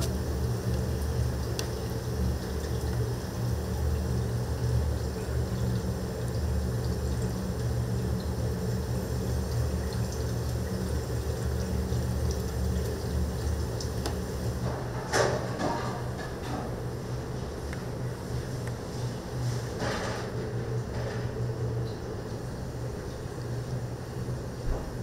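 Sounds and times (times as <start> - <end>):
kitchen clatter: 14.7 - 16.8.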